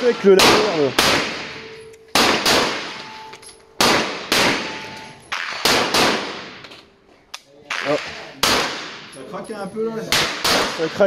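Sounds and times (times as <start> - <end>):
handgun shots with reverberant tail: 0.4 - 3.2, 3.8 - 6.7, 7.7 - 9.2, 10.1 - 10.9.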